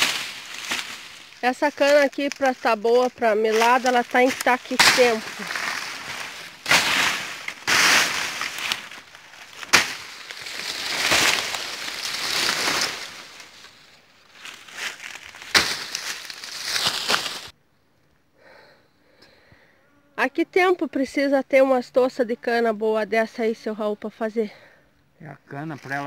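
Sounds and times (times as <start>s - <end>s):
dry cane leaves crackling: 0.0s - 17.6s.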